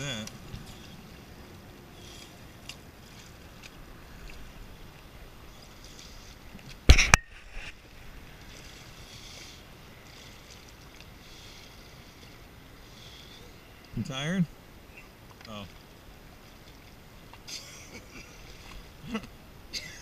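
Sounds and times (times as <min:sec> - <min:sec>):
water lapping against hull: 0:00.0 - 0:20.0.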